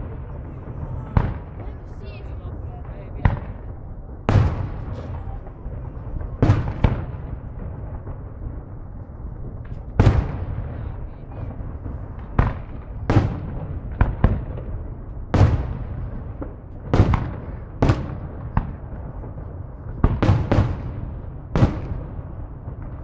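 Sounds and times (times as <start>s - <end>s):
low rumble: 0.0s - 16.9s.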